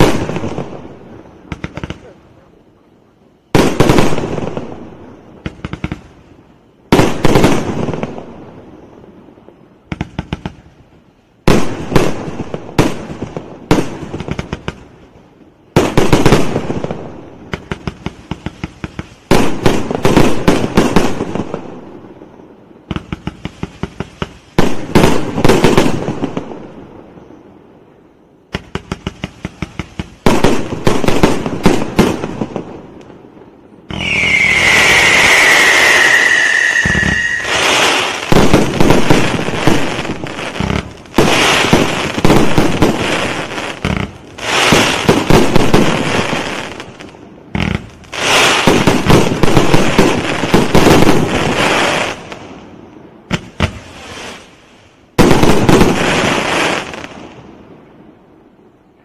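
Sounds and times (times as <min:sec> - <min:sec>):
firework cracks: 0:00.0 - 0:02.2, 0:03.5 - 0:06.3, 0:09.9 - 0:10.8, 0:15.7 - 0:21.8, 0:22.8 - 0:26.6, 0:28.5 - 0:57.4.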